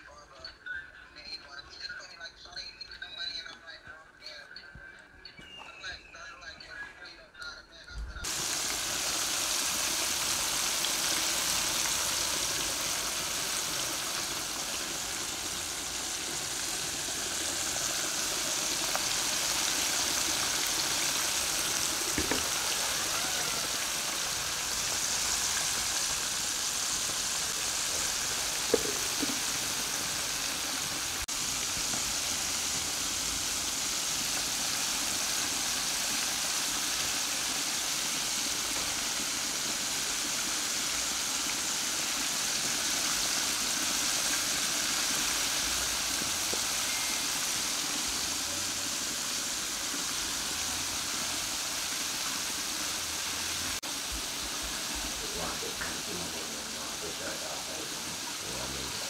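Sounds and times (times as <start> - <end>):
chicken deep-frying in oil: 8.2 - 59.0.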